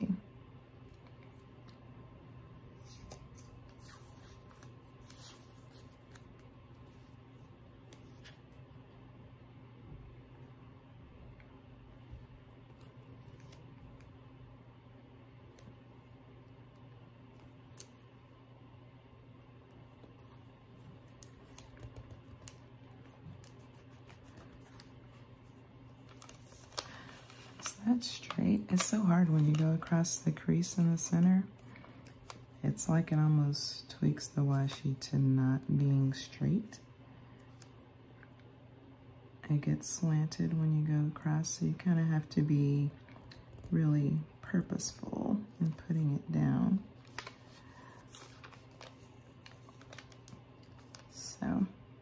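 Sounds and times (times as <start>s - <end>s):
low steady hum: 0.0s - 52.0s
tape peeling crackles: 26.0s - 27.7s, 48.1s - 51.1s.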